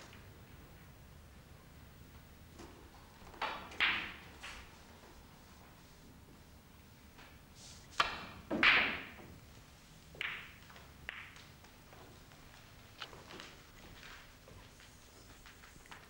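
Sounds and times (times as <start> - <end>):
snooker balls clattering: 2.6 - 4.8, 8.0 - 9.4, 10.1 - 16.0
cue clicking on ball: 8.0 - 9.3, 10.1 - 11.5
balls clicking together: 10.1 - 12.4.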